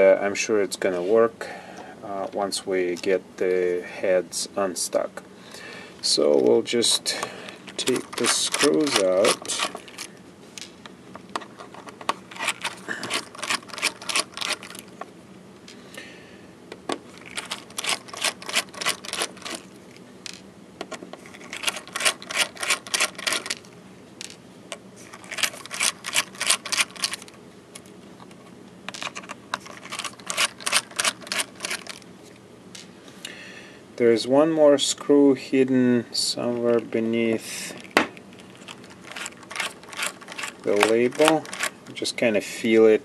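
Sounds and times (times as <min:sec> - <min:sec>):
screwdriver rapid clicking: 0:29.8 - 0:32.0, 0:39.1 - 0:41.8.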